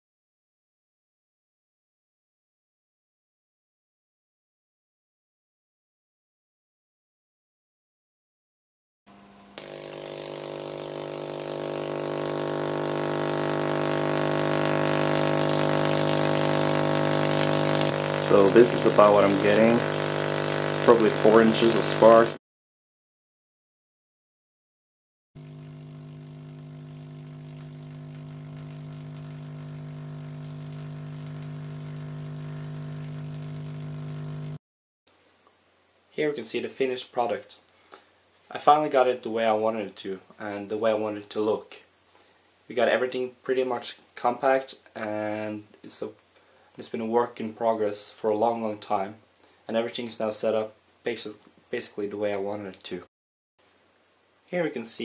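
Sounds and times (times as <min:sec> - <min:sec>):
tesla coil buzzing with hiss: 0:09.6 - 0:22.4, 0:25.4 - 0:34.6.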